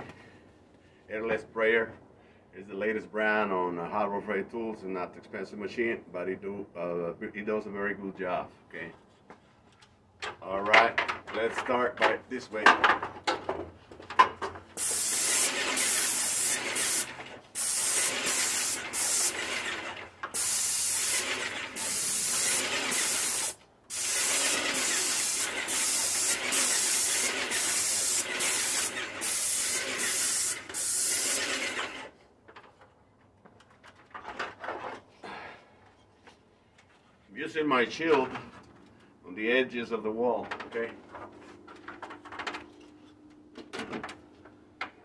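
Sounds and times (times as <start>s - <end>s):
paint sprayer gun hissing: 14.8s - 32.0s.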